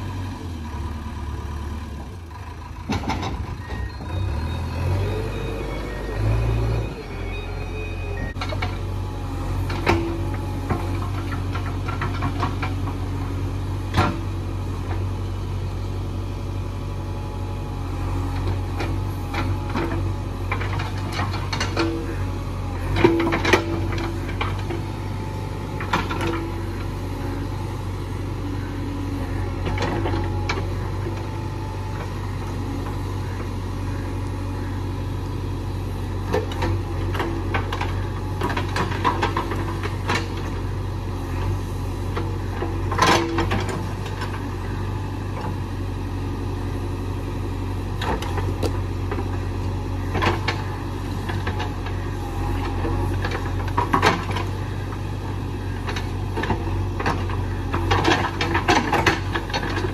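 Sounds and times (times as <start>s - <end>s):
diesel engine running: 0.0s - 59.9s
backhoe bucket knocks and clanks: 2.8s - 3.9s.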